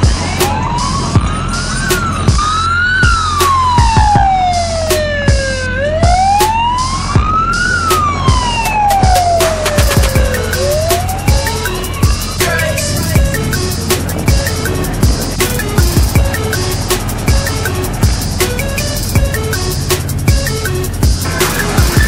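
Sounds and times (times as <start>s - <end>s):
music with heavy drum beat: 0.0s - 22.0s
siren wailing up and down: 0.0s - 22.0s.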